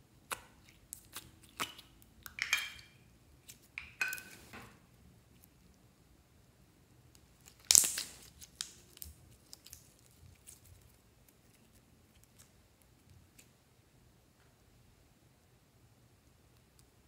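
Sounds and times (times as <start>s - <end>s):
slime crackling and tearing: 7.4s - 11.0s.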